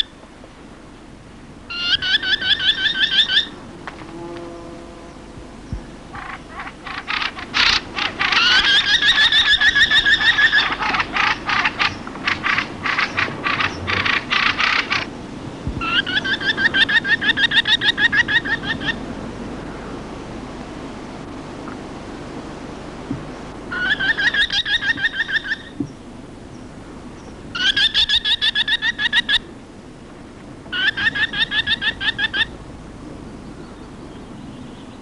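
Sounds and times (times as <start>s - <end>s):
bird chattering call: 1.7s - 3.6s, 6.1s - 15.1s, 15.8s - 19.0s, 23.7s - 25.8s, 27.2s - 29.5s, 30.7s - 32.5s.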